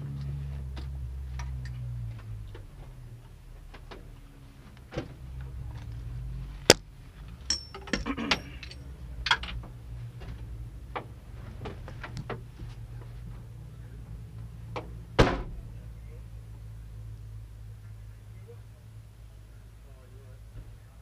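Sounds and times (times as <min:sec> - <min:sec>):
low steady hum: 0:00.0 - 0:21.0
brief jangle: 0:07.4 - 0:08.9.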